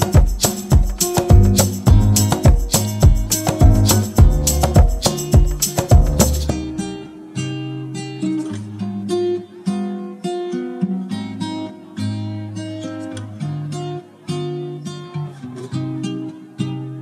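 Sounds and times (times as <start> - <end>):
bass line: 0.0 - 6.8
acoustic guitar melody: 0.0 - 17.0.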